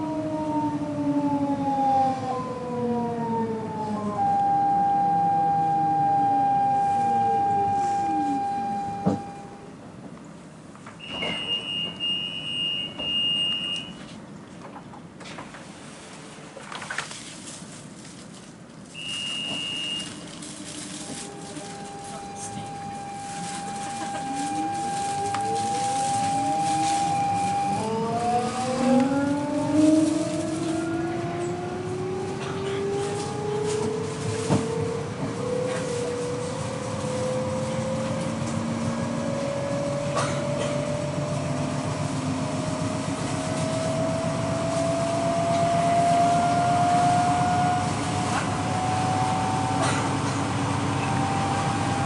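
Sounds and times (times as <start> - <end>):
wheels rumbling on rail: 0.0 - 52.0
electric train motors whining: 19.0 - 52.0.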